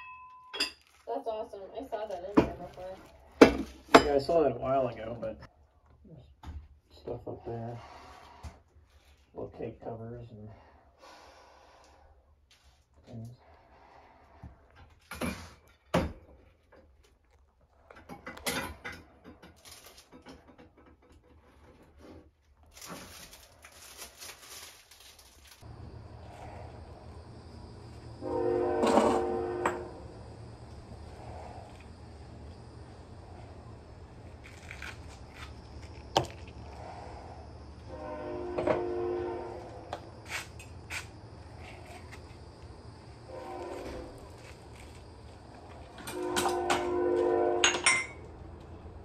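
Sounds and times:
household items clinking and rattling: 0:00.0 - 0:01.2, 0:17.8 - 0:25.7
rustling and scraping: 0:12.4 - 0:29.9, 0:30.7 - 0:48.3
kitchen items set on counter: 0:47.6 - 0:48.3.

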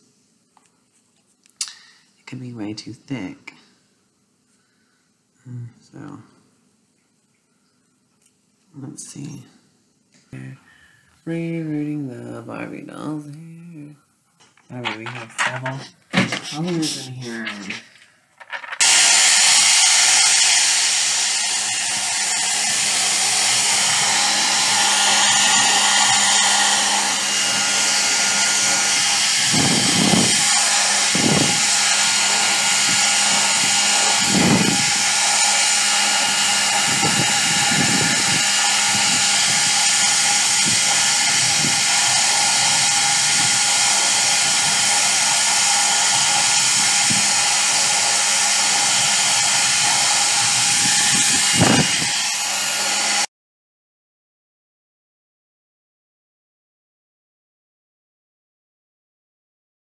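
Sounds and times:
hair dryer blowing: 0:14.8 - 0:17.8, 0:18.8 - 0:53.3.

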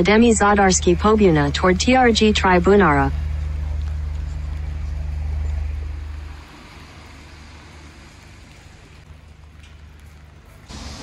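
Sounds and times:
vehicle rumble: 0:00.0 - 0:11.0
hiss: 0:10.7 - 0:11.0.

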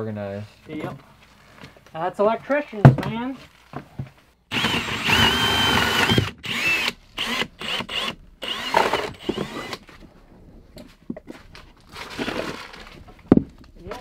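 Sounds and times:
cordless drill boring into wood: 0:04.5 - 0:09.9.

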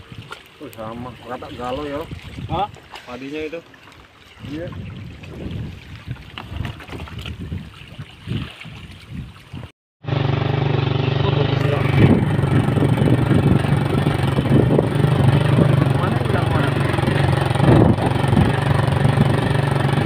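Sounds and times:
small engine running: 0:10.0 - 0:20.0.

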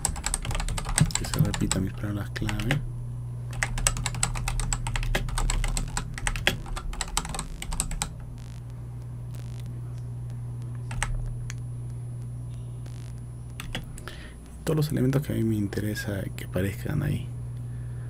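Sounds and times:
typing on a keyboard: 0:00.0 - 0:02.8, 0:03.5 - 0:08.1, 0:10.9 - 0:11.2
steady low hum: 0:00.0 - 0:18.0.

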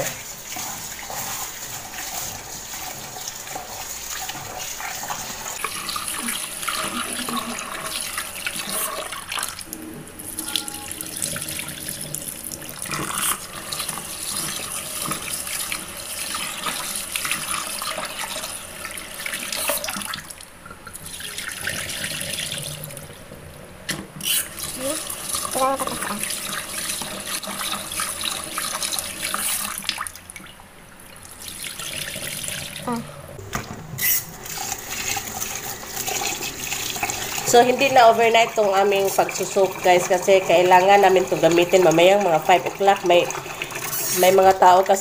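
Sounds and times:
faucet running into tub: 0:00.0 - 0:23.2, 0:24.2 - 0:30.5, 0:31.1 - 0:33.0, 0:34.0 - 0:45.0
water poured into sink: 0:00.0 - 0:23.2, 0:33.5 - 0:45.0.

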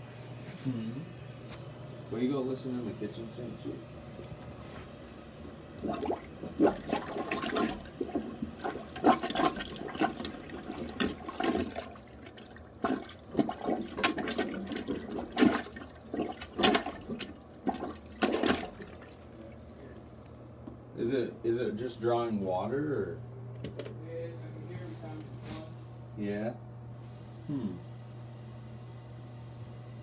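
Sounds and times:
plunger sloshing water in toilet: 0:05.8 - 0:19.8.

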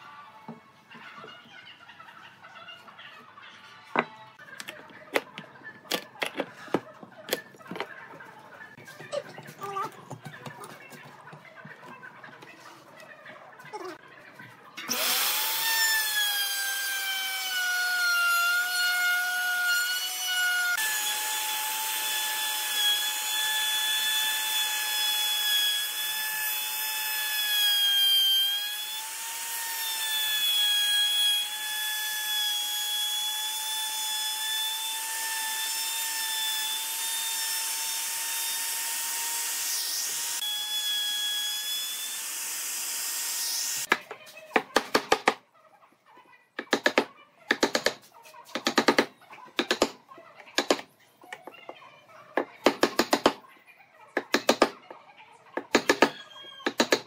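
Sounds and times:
power tool cutting wood: 0:14.9 - 0:43.9.

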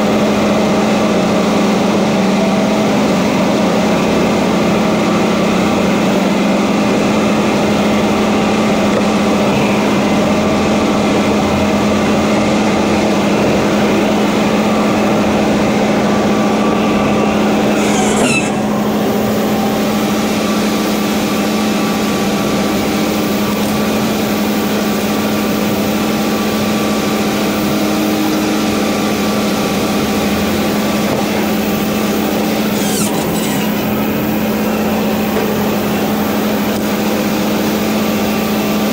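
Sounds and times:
diesel engine at high revs: 0:00.0 - 0:38.9
brief sweeping sounds: 0:17.7 - 0:18.7.

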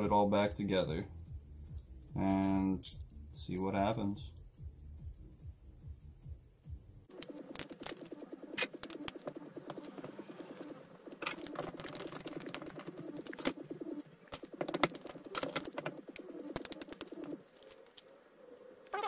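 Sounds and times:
small metal hardware clinking: 0:01.6 - 0:04.6.

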